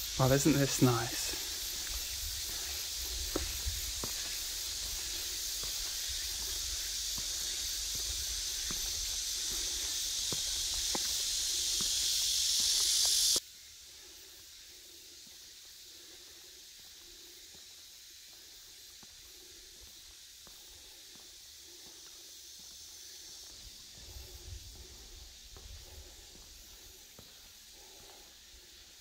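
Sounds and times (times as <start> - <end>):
cicada chorus: 0.0 - 29.0
footsteps on stone paving: 0.6 - 13.4.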